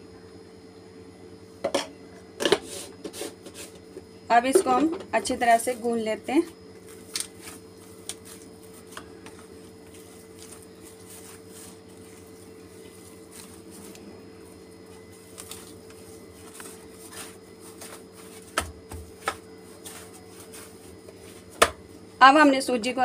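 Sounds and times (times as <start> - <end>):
faint hum: 0.0 - 23.0
hands kneading dough: 5.2 - 22.1.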